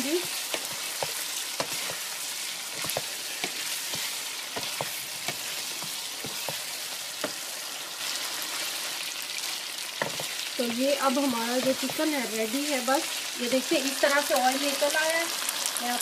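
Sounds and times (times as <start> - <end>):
spatula scraping a pan: 0.0 - 9.0, 9.8 - 13.3
food sizzling in oil: 0.0 - 16.0.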